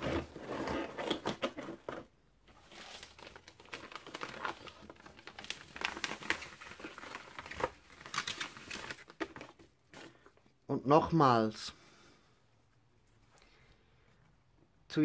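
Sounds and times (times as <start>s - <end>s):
paper sheets rustling: 0.0s - 10.3s.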